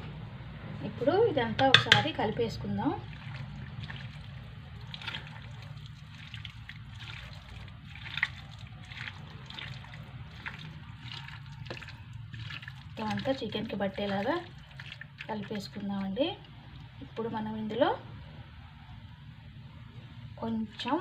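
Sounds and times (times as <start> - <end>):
wet squelching of kneaded meat: 3.0 - 17.0.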